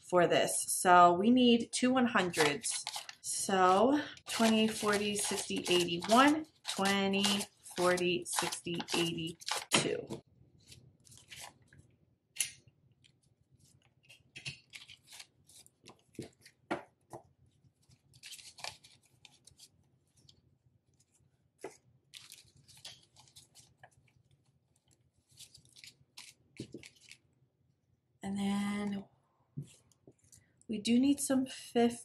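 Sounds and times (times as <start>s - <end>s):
banknotes rustling: 2.2s - 11.8s, 14.1s - 16.7s, 17.8s - 20.4s, 21.0s - 24.3s, 25.2s - 27.2s
plastic pouch crinkling: 2.3s - 9.8s, 17.8s - 19.8s, 21.7s - 27.2s.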